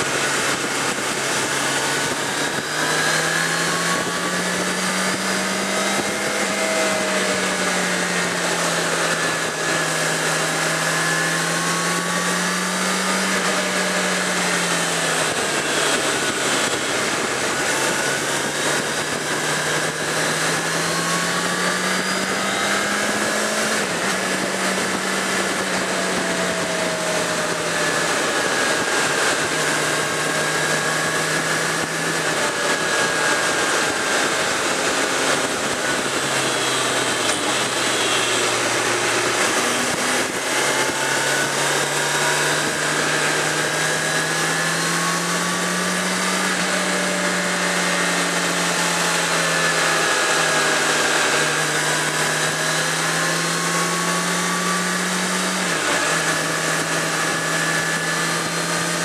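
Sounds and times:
motorcycle engine running: 0.0 - 59.0
wind rush: 0.0 - 59.0.

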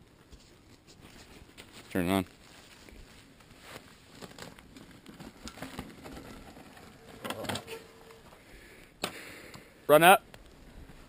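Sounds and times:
bike tyres rolling over dirt: 0.1 - 8.5.

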